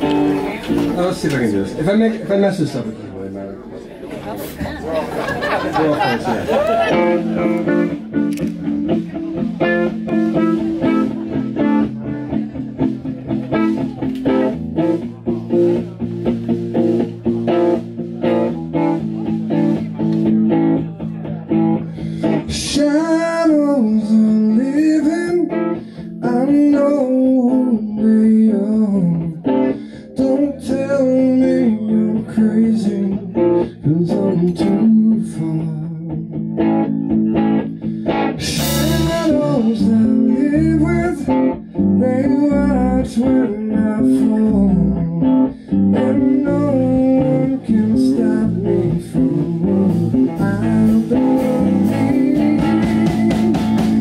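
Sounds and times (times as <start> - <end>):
wavering lead guitar melody: 0.0 - 1.8, 6.2 - 54.0
bass guitar: 0.0 - 2.2, 4.1 - 54.0
drum kit: 6.5 - 22.6, 36.6 - 40.6, 47.8 - 54.0.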